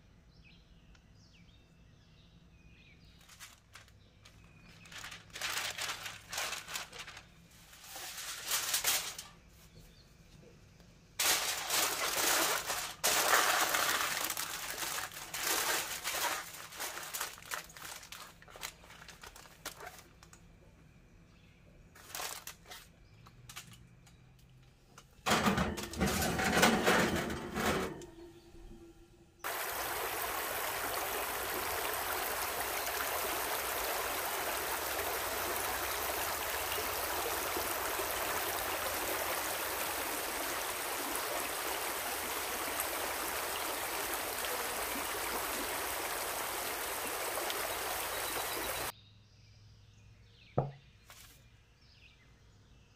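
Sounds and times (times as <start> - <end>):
aluminium foil crinkling: 3.2 - 9.4, 11.2 - 20.5, 22.0 - 23.8
stream running over rocks: 11.2 - 17.3, 29.4 - 48.9.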